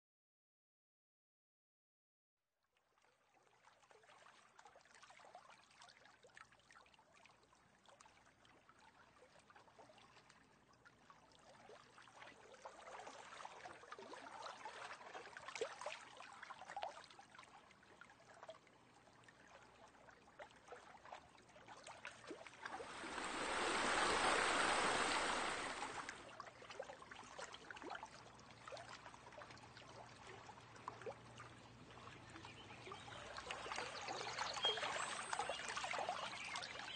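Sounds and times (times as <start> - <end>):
water trickling and splashing: 2.9 - 36.9
water rushing: 22.6 - 26.3.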